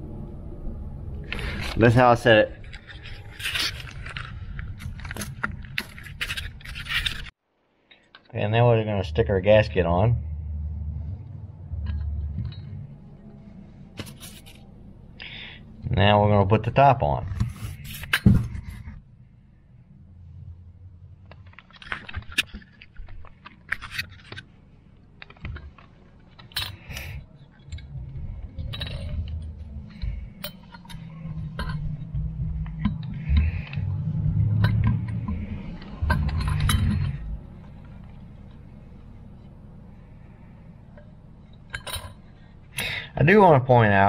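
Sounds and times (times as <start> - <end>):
metal clinks and scrapes: 1.3 - 7.4, 11.8 - 14.7, 17.3 - 19.0, 21.2 - 24.6, 25.2 - 33.8, 34.4 - 39.2, 40.0 - 42.6
low bumping: 27.8 - 37.7.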